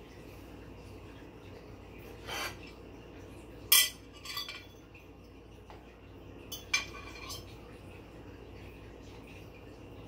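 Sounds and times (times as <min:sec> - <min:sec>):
utensil scraping a plate: 0:02.2 - 0:02.7
utensil clinking on a plate: 0:03.7 - 0:05.0, 0:06.5 - 0:07.6.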